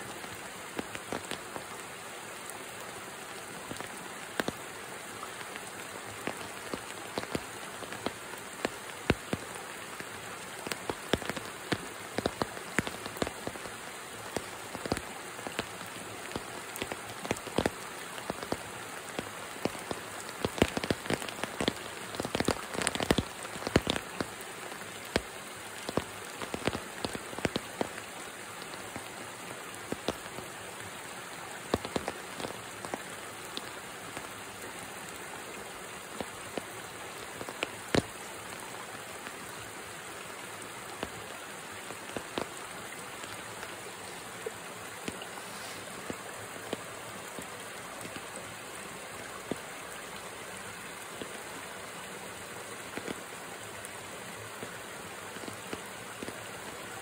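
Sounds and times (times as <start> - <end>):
rain hissing on water: 0.0 - 57.0
raindrops ticking: 0.2 - 1.8, 3.5 - 51.8, 52.8 - 54.8, 55.4 - 56.5.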